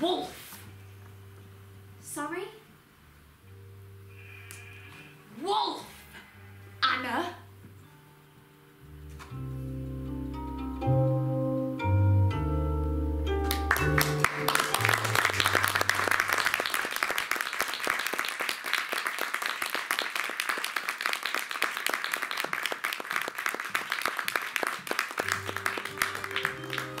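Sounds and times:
audience applauding: 13.4s - 27.0s.

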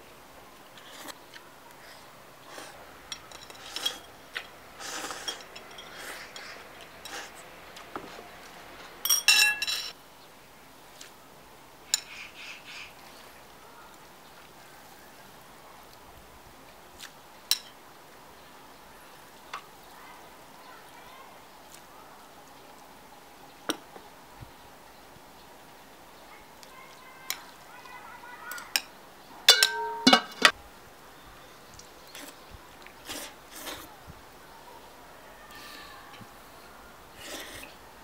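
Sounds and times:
metal chopsticks clinking: 5.2s - 7.2s, 9.0s - 10.0s, 29.5s - 30.5s.

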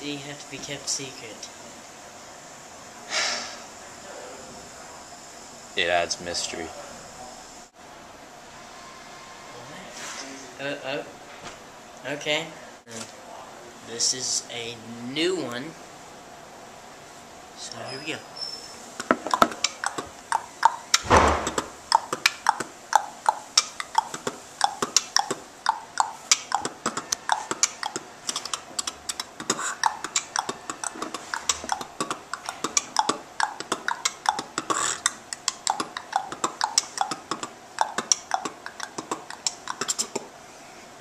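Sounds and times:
beatboxing clicks and snare hits: 19.0s - 40.3s
deep bass beatbox hit: 19.0s - 40.3s.

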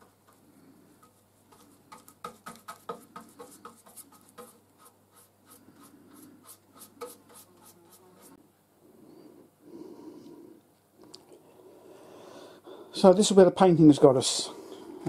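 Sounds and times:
scratchy paintbrush strokes: 0.0s - 8.4s.

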